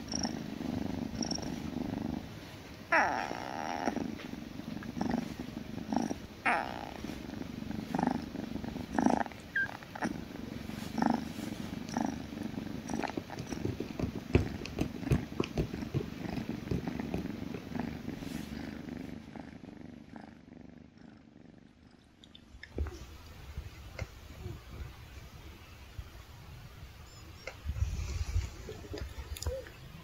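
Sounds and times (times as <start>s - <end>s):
kitten purring: 0.0s - 25.6s, 27.1s - 30.0s
hand rubbing on fur: 6.8s - 9.4s, 10.0s - 19.2s.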